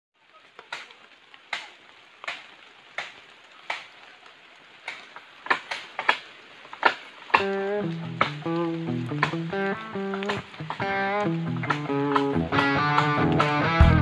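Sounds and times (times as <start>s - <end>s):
blade chopping bamboo: 4.9s - 8.4s.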